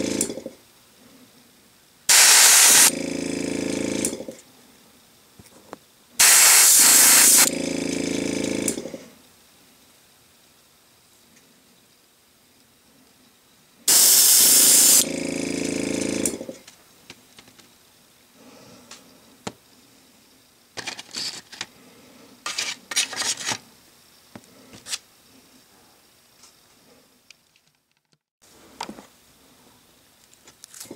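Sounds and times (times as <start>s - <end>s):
airbrush hissy spurts: 2.1s - 3.0s, 6.2s - 7.6s, 13.9s - 15.1s
compressor air hissing: 2.1s - 4.3s, 6.2s - 9.1s, 13.9s - 16.6s.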